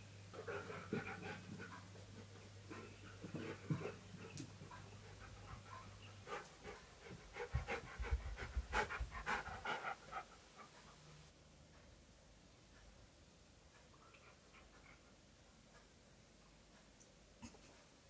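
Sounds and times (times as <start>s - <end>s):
dog panting: 0.4s - 11.3s, 14.1s - 15.4s.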